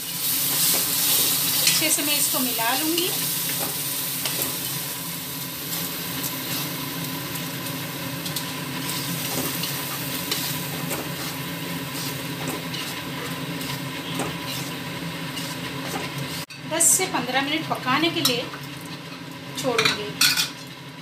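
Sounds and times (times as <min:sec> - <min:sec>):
paste sizzling in oil: 0:00.0 - 0:16.6
spoon scraping pan: 0:08.8 - 0:16.6.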